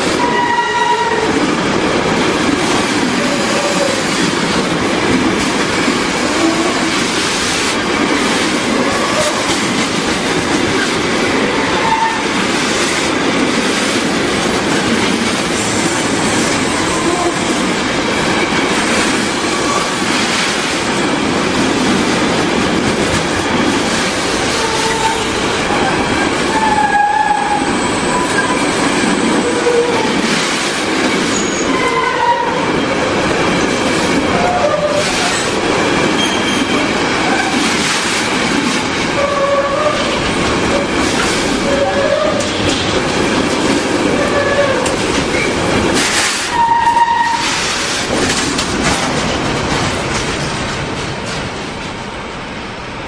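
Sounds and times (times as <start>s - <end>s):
freight train rumbling past: 0.0s - 53.0s
wheels clattering over rail joints: 33.4s - 52.0s.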